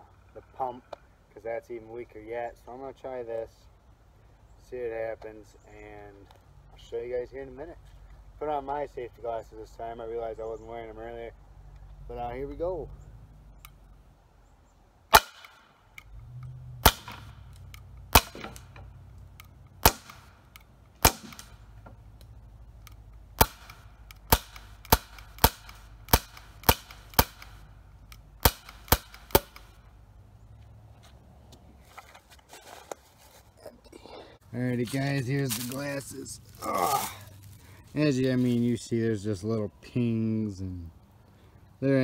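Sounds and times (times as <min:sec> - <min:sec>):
air pistol shots: 0:15.1 - 0:15.7, 0:16.8 - 0:17.4, 0:18.1 - 0:18.7, 0:19.8 - 0:21.7, 0:23.4 - 0:29.8.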